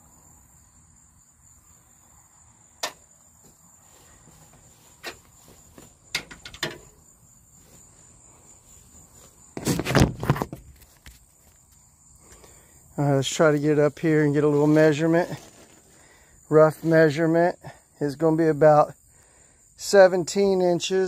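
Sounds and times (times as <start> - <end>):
insects trilling: 0.0 - 21.0
sharp knocks: 6.1 - 7.0.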